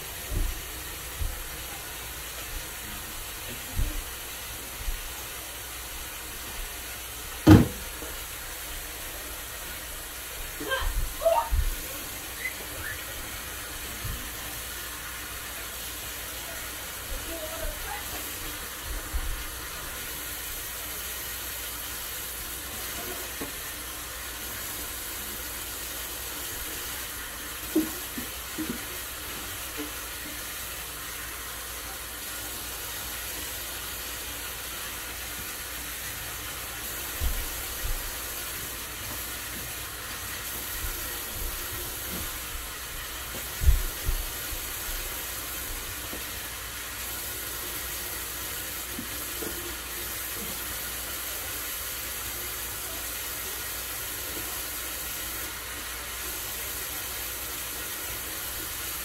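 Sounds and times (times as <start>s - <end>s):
tap running into sink: 7.3s - 8.2s, 27.6s - 30.4s.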